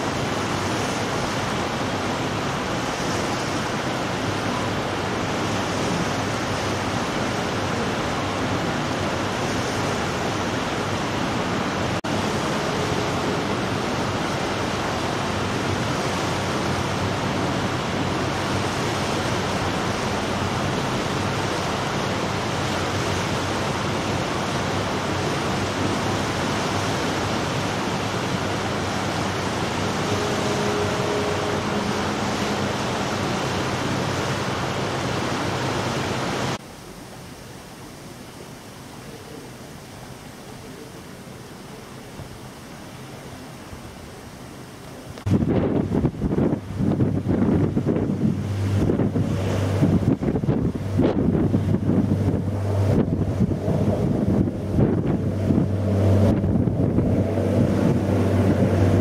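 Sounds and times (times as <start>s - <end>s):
water washing past ship: 0.0s - 59.0s
wind rushing: 45.2s - 59.0s.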